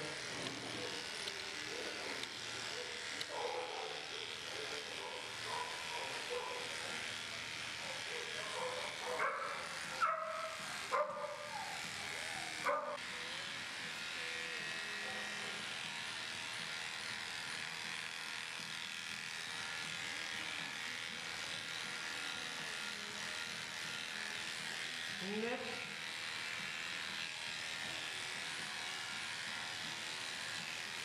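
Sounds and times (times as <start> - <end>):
electric clippers running: 0.0 - 31.0
dog barking: 3.3 - 4.0, 5.0 - 6.6, 8.1 - 11.5, 12.6 - 13.0.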